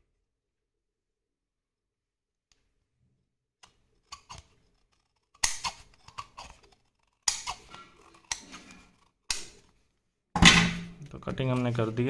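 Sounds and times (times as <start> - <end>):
scissors cutting cardboard: 3.6 - 9.8.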